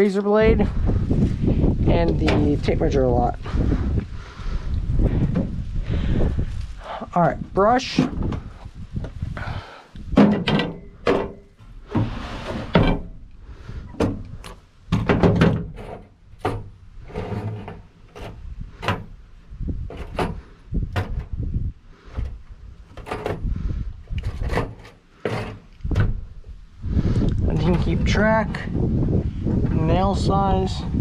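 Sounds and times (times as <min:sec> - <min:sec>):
tools knocking and clattering: 0:10.1 - 0:11.7, 0:14.9 - 0:19.1
scraping and rustling: 0:10.2 - 0:19.2, 0:22.0 - 0:26.3.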